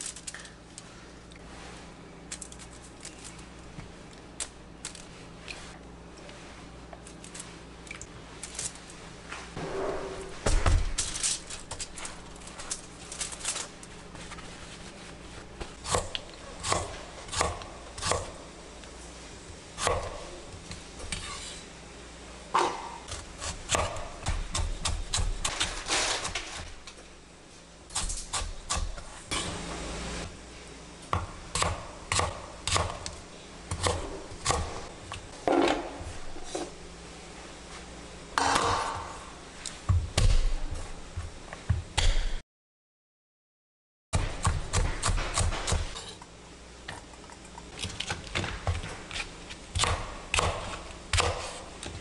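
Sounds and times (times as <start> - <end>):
knife chopping on cutting board: 15.8 - 18.4, 22.6 - 25.6, 31.1 - 33.1, 44.2 - 46.1, 47.8 - 51.6.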